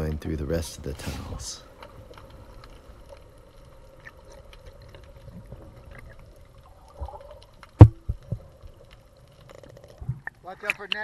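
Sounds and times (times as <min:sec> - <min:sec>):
faint clicks and crackles: 0:00.0 - 0:11.0
water swish: 0:00.7 - 0:11.0
low underwater rumble: 0:01.6 - 0:10.4.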